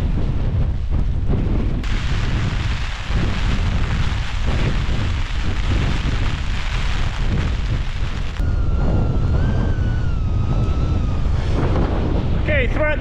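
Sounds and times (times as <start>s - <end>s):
strong gusting wind on microphone: 0.0s - 13.0s
thin wavering whistling tone: 8.4s - 11.7s.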